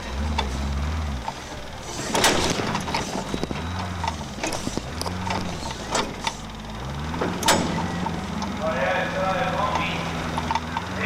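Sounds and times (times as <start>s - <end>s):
truck engine revving: 0.0s - 11.0s
vehicle banging on rock: 1.9s - 6.4s, 7.1s - 8.4s.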